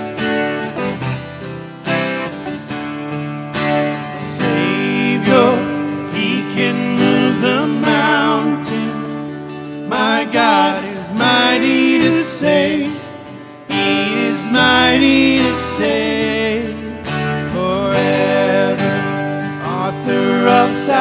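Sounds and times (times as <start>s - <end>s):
strummed acoustic guitars: 0.0s - 21.0s
men singing worship song: 4.2s - 9.2s, 9.8s - 13.1s, 13.7s - 21.0s.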